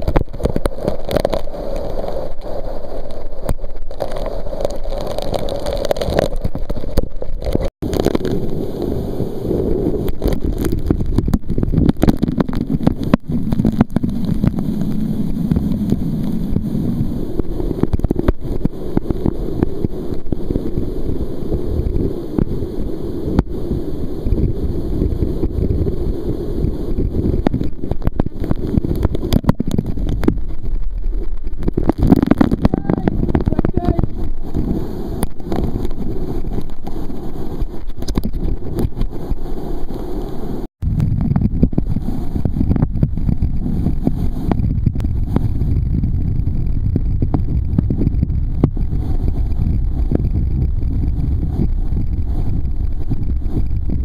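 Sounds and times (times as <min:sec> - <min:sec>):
waterfall splashing on microphone: 0:00.0 - 0:54.0.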